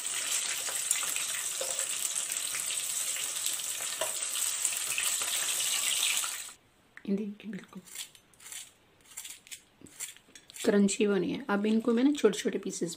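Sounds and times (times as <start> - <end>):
chicken sizzling in oil: 0.0 - 6.6.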